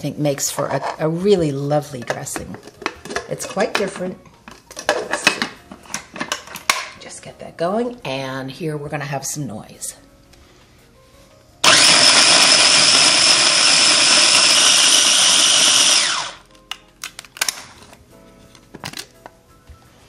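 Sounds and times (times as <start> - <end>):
food processor motor running: 11.6 - 16.4.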